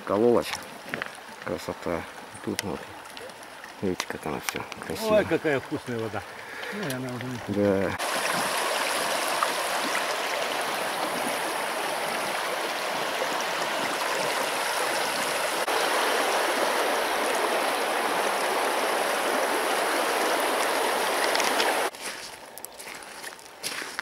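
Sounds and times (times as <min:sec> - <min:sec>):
river water running: 0:00.0 - 0:24.0.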